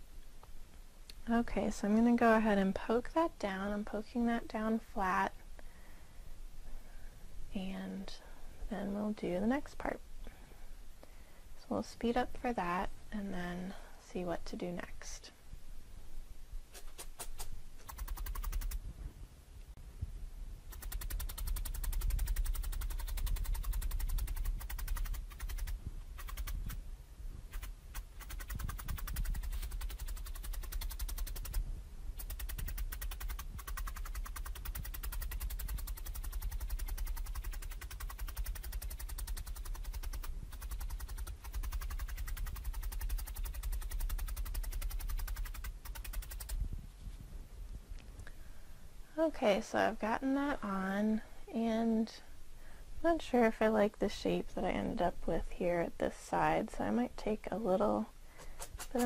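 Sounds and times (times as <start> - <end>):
felting needle tapping: 17.0 - 18.8, 20.7 - 26.8, 27.5 - 31.6, 32.2 - 46.6, 58.4 - 59.0.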